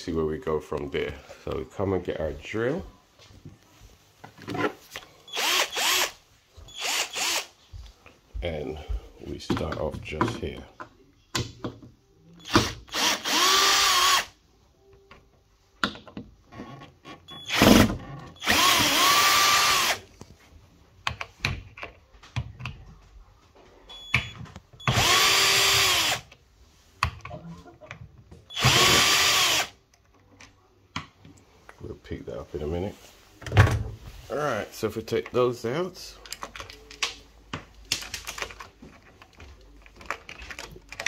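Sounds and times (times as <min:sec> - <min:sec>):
cordless drill whirring: 0:05.3 - 0:07.5, 0:12.4 - 0:14.3, 0:18.4 - 0:20.0, 0:24.8 - 0:26.2, 0:28.5 - 0:29.7.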